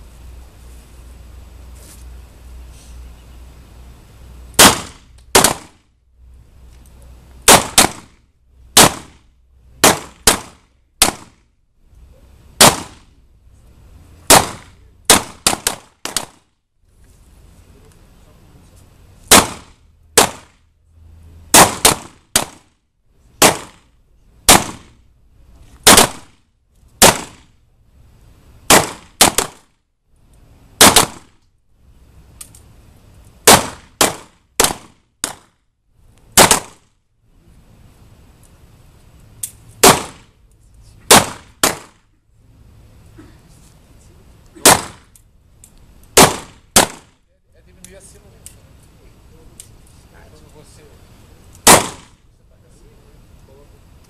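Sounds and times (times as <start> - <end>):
handgun shots: 4.6 - 5.7, 8.8 - 9.2, 9.8 - 11.4, 12.6 - 13.1, 14.3 - 16.4, 19.3 - 20.5, 21.5 - 22.7, 23.4 - 23.9, 25.8 - 26.3, 27.0 - 27.5, 28.7 - 29.6, 30.8 - 31.3, 33.5 - 35.5, 36.4 - 36.8, 39.8 - 40.3, 41.1 - 42.0, 44.6 - 45.2, 46.2 - 47.1, 51.6 - 52.2.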